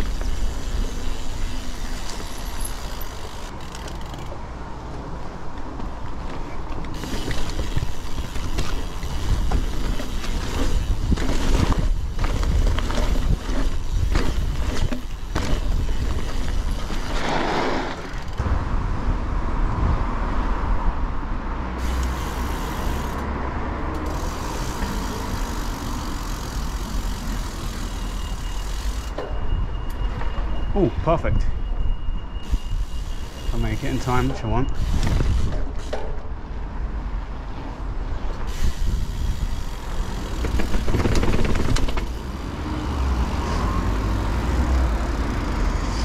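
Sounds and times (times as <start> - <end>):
road rumble while travelling: 0.0 - 46.0
wind buffeting microphone: 7.4 - 17.1.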